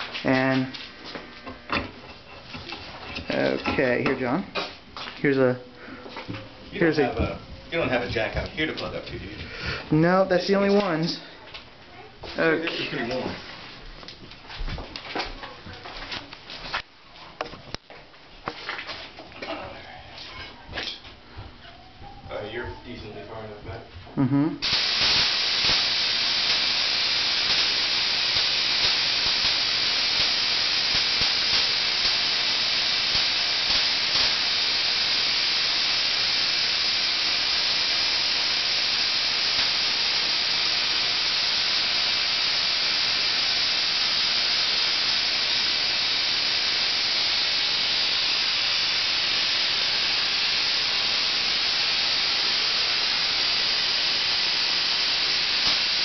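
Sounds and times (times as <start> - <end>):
tesla coil sparks buzzing: 1.7 - 5.4, 9.8 - 11.2, 24.6 - 56.0.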